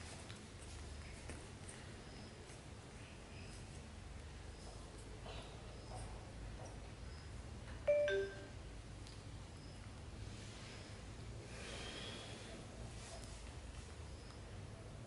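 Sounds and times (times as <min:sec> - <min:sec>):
faint low hum: 0:00.0 - 0:15.0
two-note electronic chime: 0:07.9 - 0:08.6.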